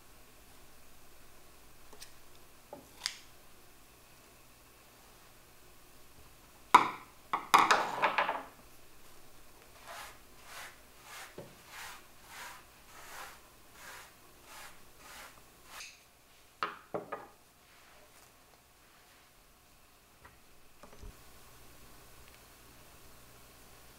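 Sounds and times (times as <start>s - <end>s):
dry sponges crackling and rustling: 9.6s - 16.5s, 17.6s - 19.5s.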